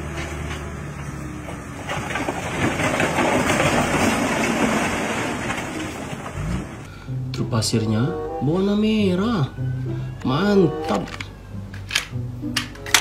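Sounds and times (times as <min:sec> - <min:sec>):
truck engine running: 0:00.0 - 0:07.2
rocks sliding and crashing: 0:01.1 - 0:06.9.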